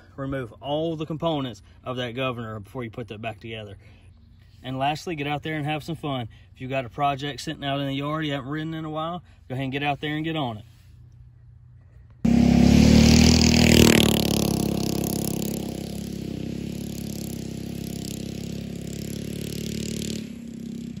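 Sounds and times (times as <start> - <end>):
go-kart engine at high revs: 12.3 - 21.0.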